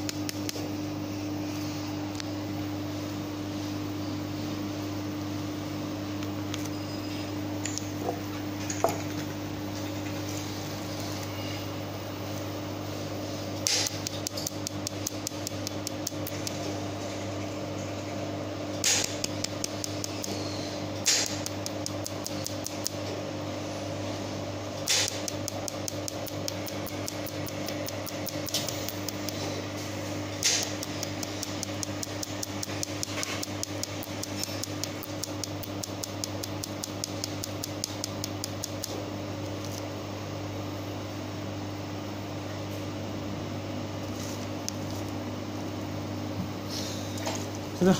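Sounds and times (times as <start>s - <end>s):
laser welder pulses ticking: 13.6s - 16.6s, 18.8s - 20.4s, 21.0s - 23.0s, 24.8s - 29.4s, 30.4s - 39.0s
sharp snaps: 13.6s - 16.6s, 18.8s - 20.4s, 21.0s - 23.0s, 24.9s - 29.4s, 30.4s - 39.0s.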